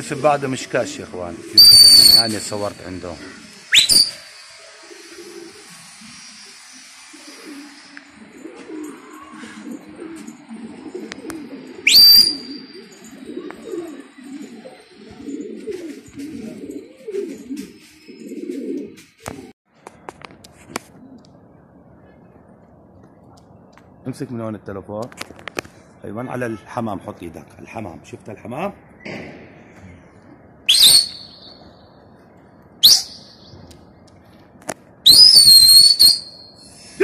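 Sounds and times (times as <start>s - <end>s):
loud rising whistle: 1.6s - 2.7s, 3.7s - 4.6s, 11.8s - 12.7s, 30.7s - 31.7s, 32.8s - 33.5s, 35.1s - 36.7s
pigeons cooing: 4.8s - 19.5s.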